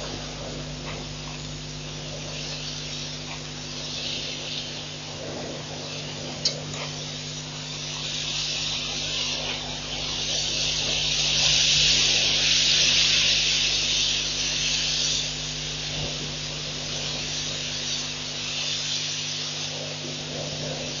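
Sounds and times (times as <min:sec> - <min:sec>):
high-pitched night ambience hiss: 0:00.0 - 0:21.0
low electrical hum: 0:00.0 - 0:21.0.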